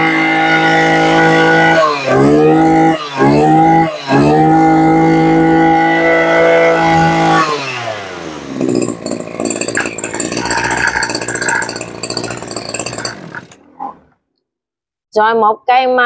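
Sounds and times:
brush cutter engine: 0:00.0 - 0:14.1.

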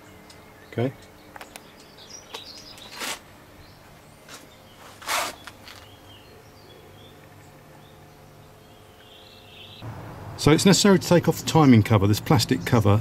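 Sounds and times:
brief rustling: 0:02.4 - 0:03.3, 0:04.3 - 0:06.0.

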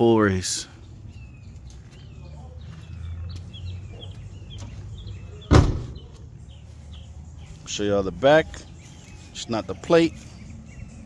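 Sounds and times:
birds chirping: 0:00.0 - 0:11.0
car door shutting: 0:05.5 - 0:06.0.

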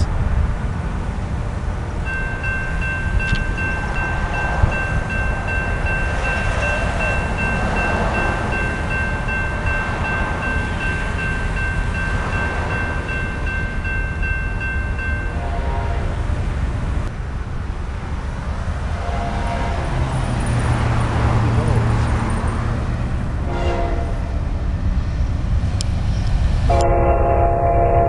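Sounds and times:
steady low rumble: 0:00.0 - 0:28.0
railroad crossing bell ringing: 0:02.0 - 0:16.1, 0:26.7 - 0:28.0.

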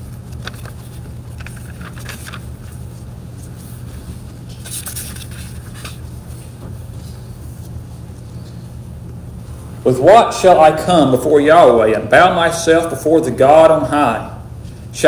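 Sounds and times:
pages turning and rustling: 0:00.0 - 0:08.7
steady low hum: 0:00.0 - 0:15.0.

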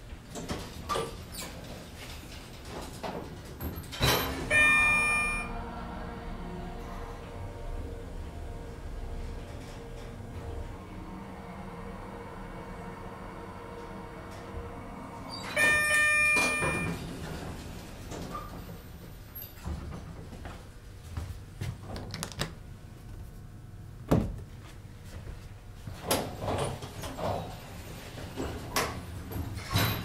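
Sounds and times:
elevator doors sliding: 0:00.0 - 0:20.3, 0:26.0 - 0:30.0
elevator arrival chime: 0:04.0 - 0:05.8, 0:15.2 - 0:17.5.

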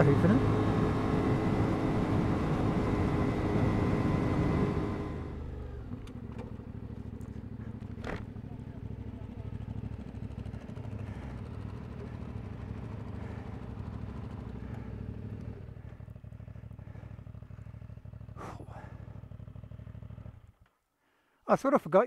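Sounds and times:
motorcycle engine running: 0:00.0 - 0:20.7.

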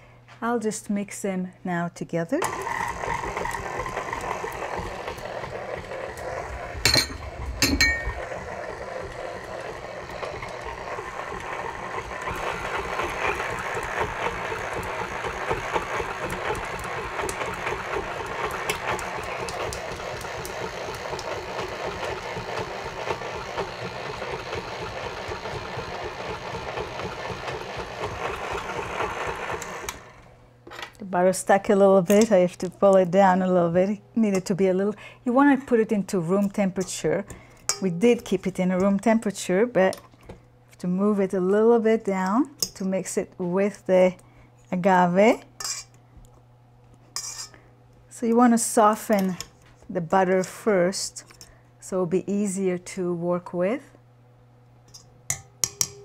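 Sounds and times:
stand mixer running: 0:02.4 - 0:30.4.

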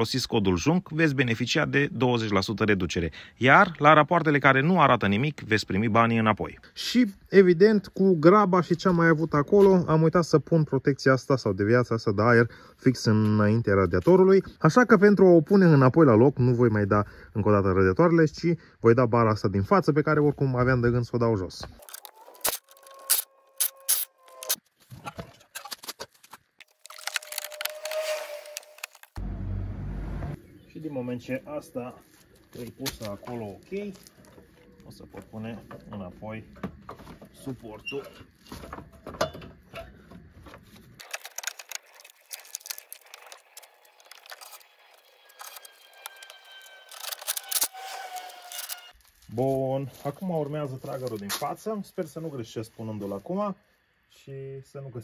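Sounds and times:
hand tools and parts clicking: 0:25.4 - 0:29.2, 0:41.0 - 0:49.0.

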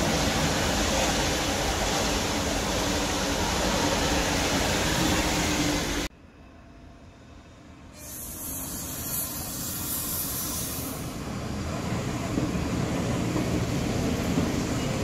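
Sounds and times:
train high hiss: 0:07.8 - 0:11.4.

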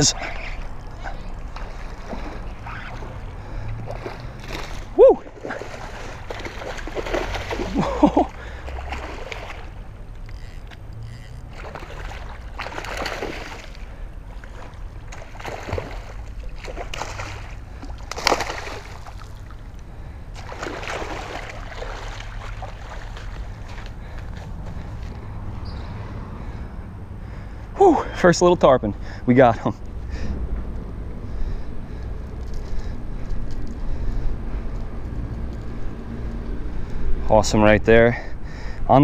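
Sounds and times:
fish splashing in water: 0:00.5 - 0:10.5, 0:11.1 - 0:19.7, 0:20.4 - 0:23.9.

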